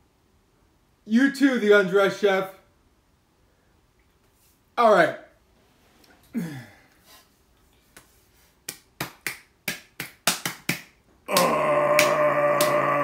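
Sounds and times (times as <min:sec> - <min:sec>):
man groaning: 0:11.3 - 0:13.0.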